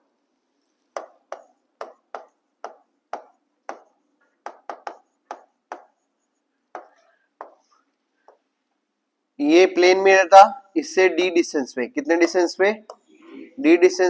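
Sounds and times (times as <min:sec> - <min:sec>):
stylus tapping on glass screen: 0:00.9 - 0:06.1, 0:06.7 - 0:08.5.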